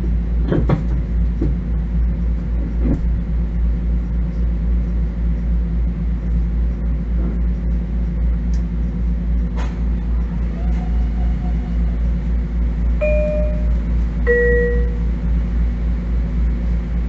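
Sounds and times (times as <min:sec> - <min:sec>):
railcar equipment humming: 0:00.0 - 0:17.0
two-note chime: 0:13.0 - 0:15.0.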